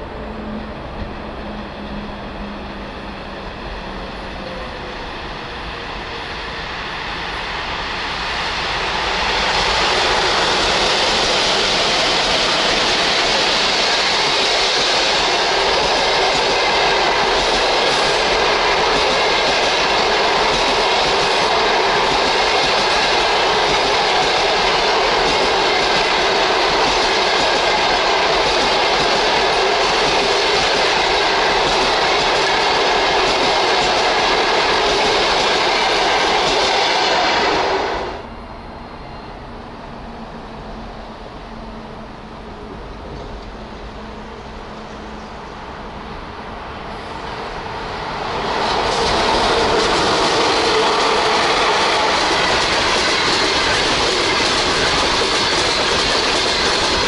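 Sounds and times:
passenger train rolling past: 0.0s - 57.0s.

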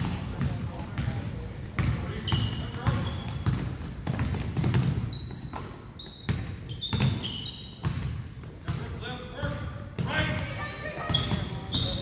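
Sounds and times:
sneaker squeaks: 0.0s - 12.0s
basketball bouncing on hardwood: 1.8s - 5.7s.

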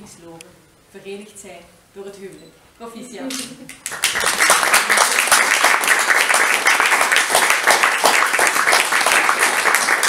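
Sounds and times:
people clapping: 3.3s - 10.0s.

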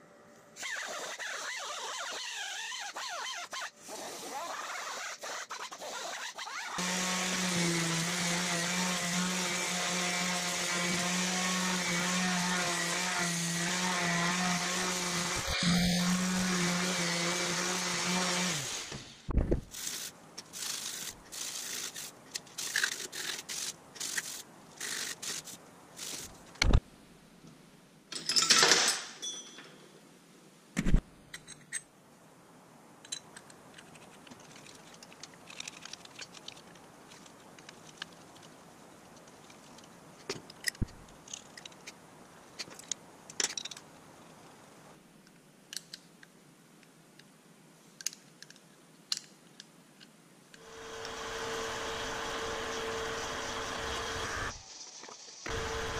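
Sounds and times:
orbital sander running: 6.8s - 18.7s, 50.6s - 54.6s, 55.5s - 55.9s
metal tools clinking: 28.1s - 29.8s.

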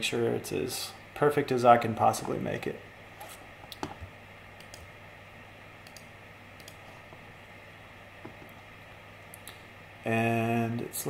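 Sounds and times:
low hum of room noise: 0.0s - 11.0s
computer control clicks: 4.6s - 4.9s, 5.8s - 6.8s.

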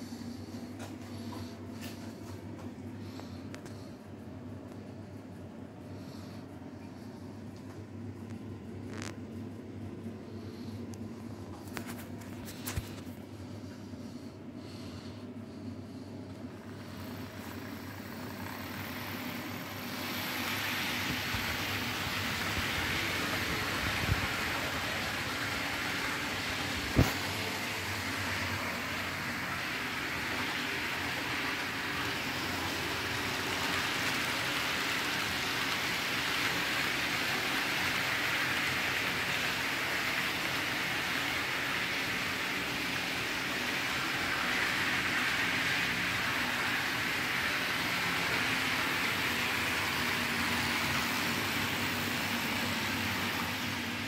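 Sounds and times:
model trains running on rails: 15.9s - 54.0s.

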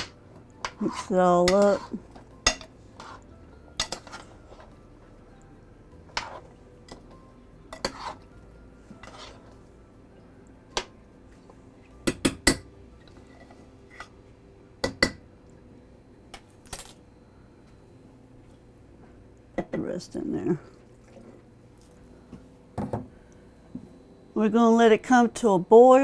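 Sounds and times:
metal spoon stirring in a pot: 0.6s - 4.8s, 6.1s - 7.1s, 7.7s - 9.6s.

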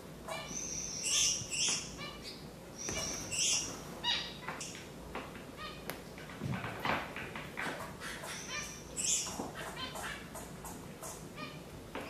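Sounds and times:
finches chirping: 0.2s - 4.9s, 7.8s - 11.6s.

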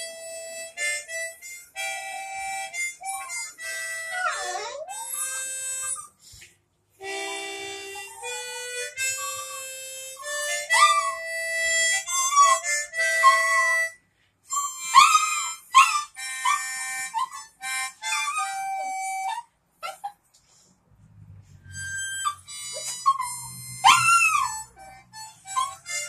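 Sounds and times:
harmonica slow melody: 0.0s - 19.5s, 21.5s - 26.0s.

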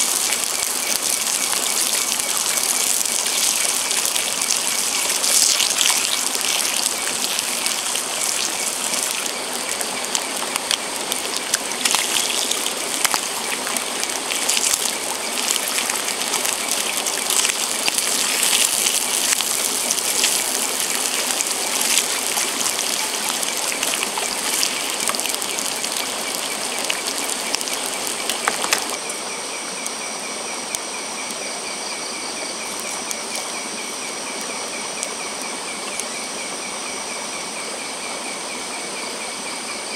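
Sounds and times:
bacon sizzling in a pan: 0.0s - 29.1s, 32.6s - 34.4s
insects chirping: 0.0s - 39.9s.

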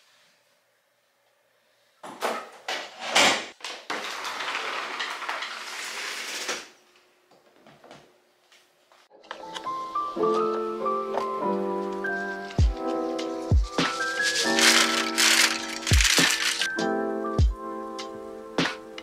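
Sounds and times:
sliding glass door rolling: 3.9s - 6.7s.

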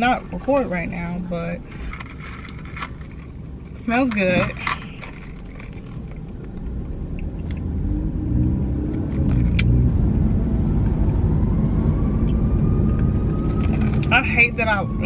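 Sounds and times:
car engine and road rumble: 0.0s - 15.0s
siren wailing: 10.3s - 15.0s.

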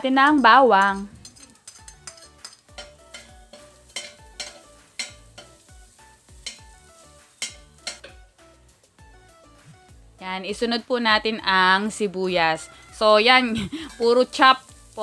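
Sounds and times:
garlic sizzling in oil: 0.0s - 15.0s
soft background music: 0.0s - 15.0s
spoon scraping and tapping pot: 0.3s - 5.7s, 6.3s - 8.3s.

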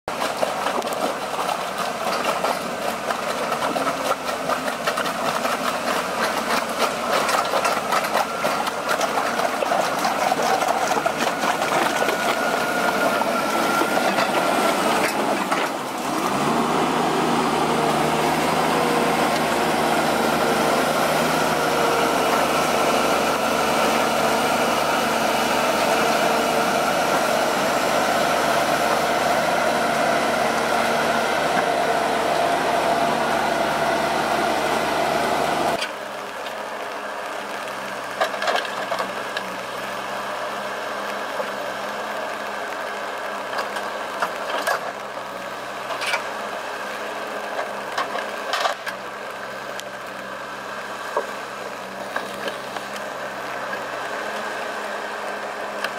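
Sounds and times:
diesel engine running under load: 0.0s - 55.9s
tracks clanking: 0.1s - 35.9s.

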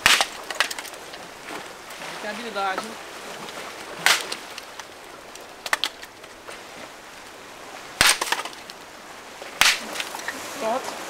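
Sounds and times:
dry branches snapping: 0.0s - 1.3s, 3.4s - 6.4s, 8.0s - 8.8s, 9.6s - 10.4s.

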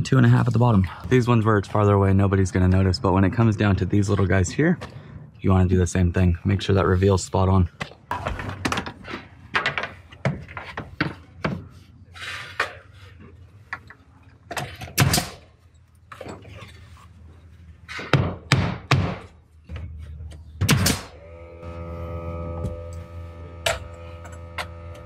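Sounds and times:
nail gun firing: 15.0s - 15.4s, 20.6s - 21.2s.

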